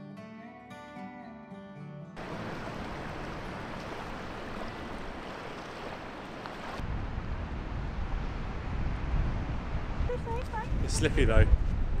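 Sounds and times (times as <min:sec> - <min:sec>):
sea water washing over causeway: 0:02.2 - 0:07.0
wind buffeting microphone: 0:02.2 - 0:12.0.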